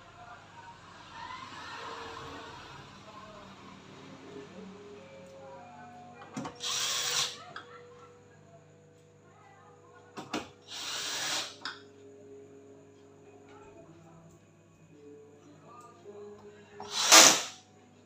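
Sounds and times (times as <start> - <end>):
drill click: 6.5 - 7.4, 10.7 - 11.6, 16.8 - 17.5
cordless drill driving screws: 6.6 - 7.4, 10.7 - 11.6, 16.8 - 17.5.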